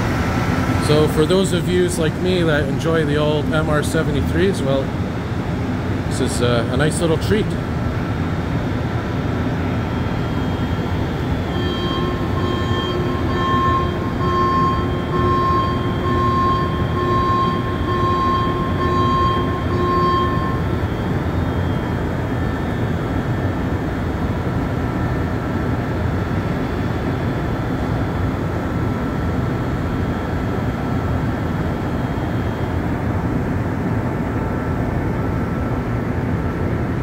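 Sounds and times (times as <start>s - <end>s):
train rumbling through station: 0.0s - 37.0s
electronic beeps: 10.0s - 22.6s.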